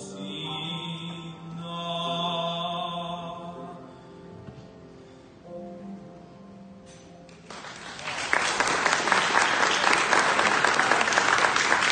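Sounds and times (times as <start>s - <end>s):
piano: 0.0s - 11.9s
audience applause: 7.4s - 11.9s.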